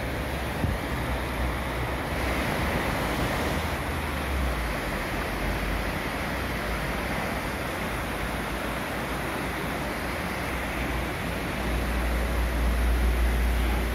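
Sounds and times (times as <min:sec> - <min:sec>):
river rushing: 0:00.0 - 0:13.9.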